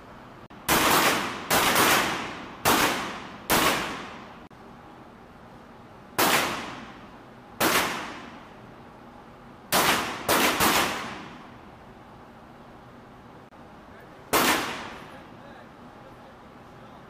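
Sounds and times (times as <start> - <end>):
pistol shots with echo: 0.7 - 4.3, 6.2 - 7.0, 7.6 - 8.4, 9.7 - 11.4, 14.3 - 15.1.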